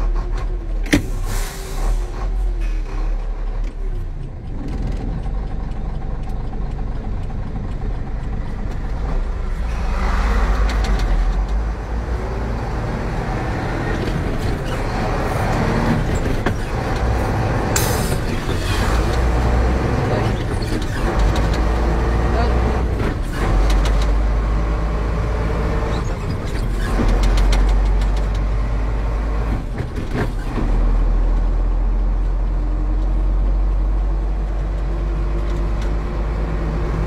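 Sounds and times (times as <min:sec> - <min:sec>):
truck engine and road noise: 0:00.0 - 0:37.0.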